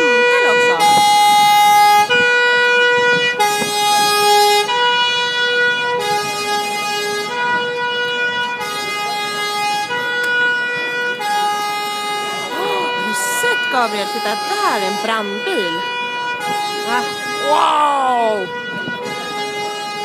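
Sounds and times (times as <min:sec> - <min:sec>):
two-tone fire engine sirens: 0:00.0 - 0:20.0.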